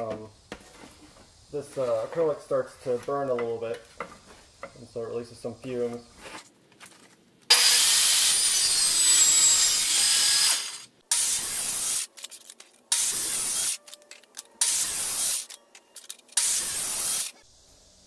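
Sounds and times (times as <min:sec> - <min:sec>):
table saw cutting acrylic: 0:07.5 - 0:12.1, 0:12.9 - 0:13.8, 0:14.6 - 0:15.5, 0:16.4 - 0:17.4.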